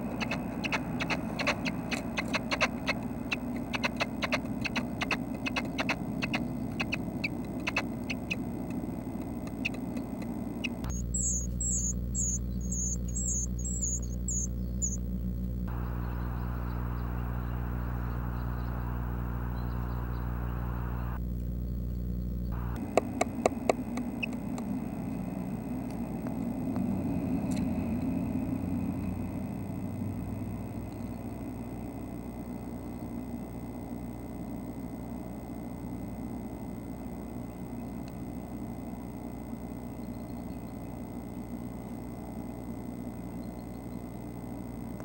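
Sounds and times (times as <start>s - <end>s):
nestlings scratching in nest: 0.0s - 15.0s
small bird chirping: 0.0s - 15.1s, 15.7s - 26.1s, 27.0s - 31.8s, 32.6s - 33.3s, 39.8s - 41.0s, 43.2s - 44.2s
steady electrical hum: 0.0s - 45.0s.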